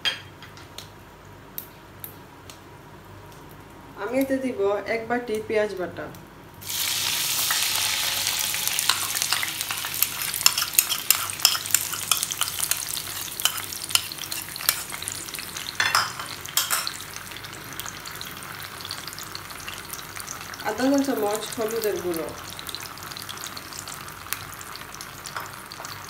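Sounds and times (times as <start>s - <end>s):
paste sizzling in hot oil: 6.6s - 15.8s
spoon clicking and scraping: 8.8s - 15.1s.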